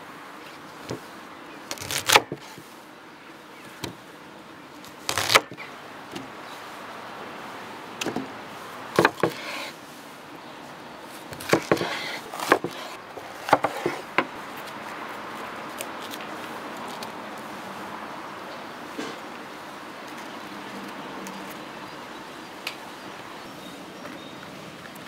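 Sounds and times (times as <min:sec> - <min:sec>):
knife cutting peppers on board: 0:11.3 - 0:14.2.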